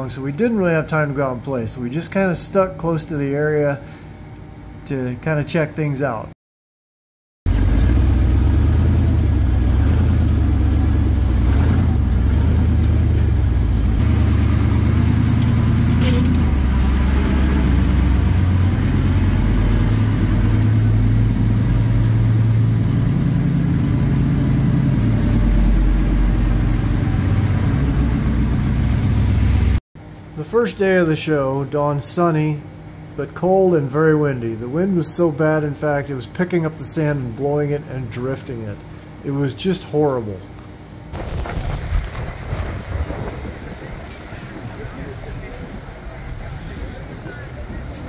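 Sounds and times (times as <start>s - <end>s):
off-road buggy engine: 7.5s - 29.8s, 41.2s - 48.0s.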